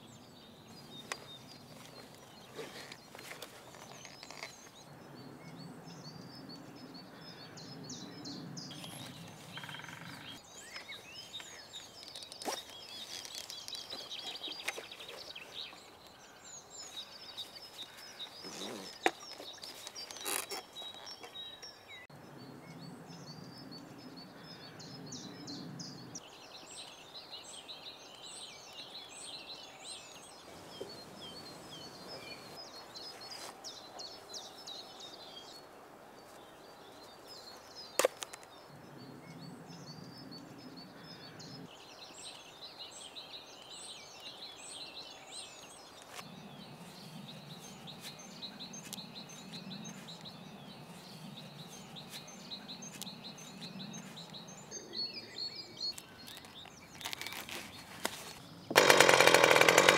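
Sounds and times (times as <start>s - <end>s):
songbirds chirping and trilling: 0.0s - 59.9s
sharp clicks: 58.7s - 59.9s.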